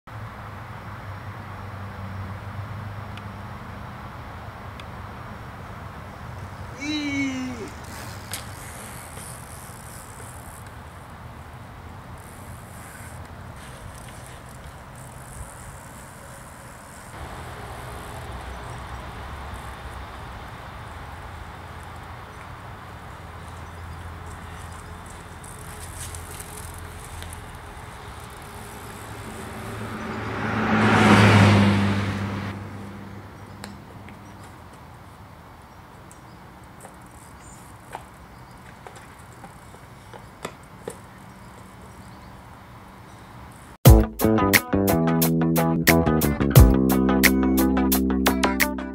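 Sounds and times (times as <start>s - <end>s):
outdoor noise with low rumble: 0.1s - 43.8s.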